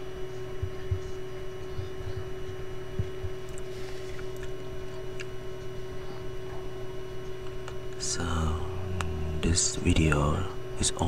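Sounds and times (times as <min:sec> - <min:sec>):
low rumbling hum: 0:00.0 - 0:11.0
soft low thumps: 0:00.3 - 0:04.4.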